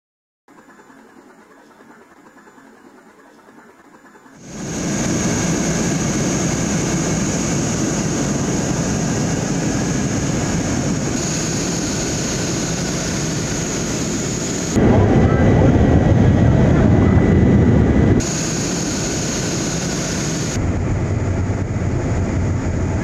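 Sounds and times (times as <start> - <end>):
jet engines and airflow roar: 4.3 - 23.0
thin high whine: 4.4 - 20.7.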